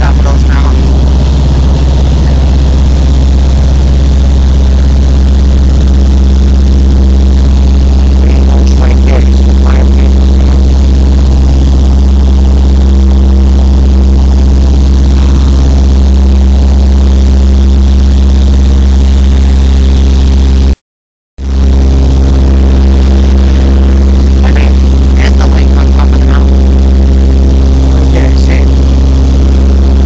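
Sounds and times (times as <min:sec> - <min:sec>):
aircraft engine droning: 0:00.0 - 0:20.6, 0:21.4 - 0:30.0.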